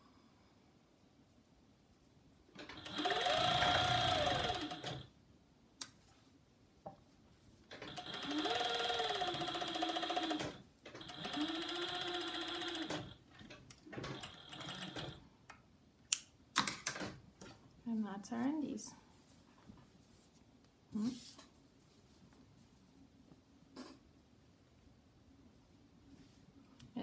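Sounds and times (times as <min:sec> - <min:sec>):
overlock machine stitching: 0:02.6 - 0:05.1, 0:07.7 - 0:15.2.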